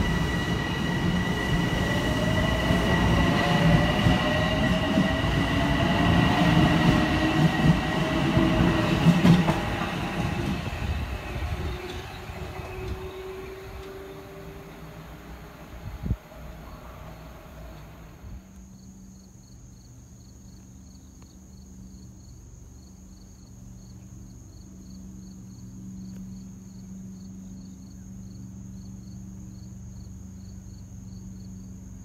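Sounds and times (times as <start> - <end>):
train pulling into station: 0.0 - 18.5
crickets chirping: 0.0 - 32.0
high insect trill: 0.0 - 32.0.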